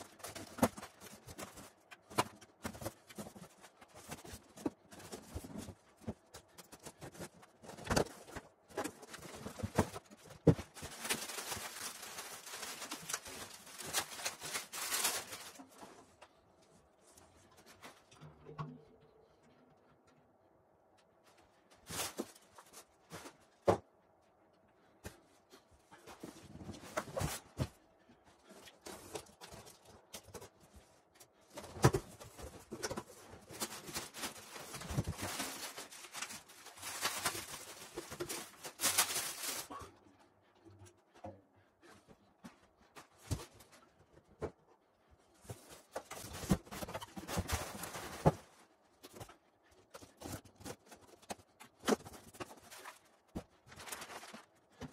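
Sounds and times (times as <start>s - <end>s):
plastic wrapping rustling: 0.0s - 16.2s, 21.5s - 23.8s, 28.4s - 39.9s, 45.4s - 54.9s.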